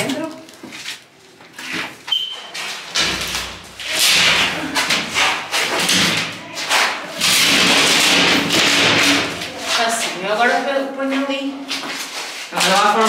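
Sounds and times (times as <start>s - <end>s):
panel thudding and scraping: 2.7s - 9.7s.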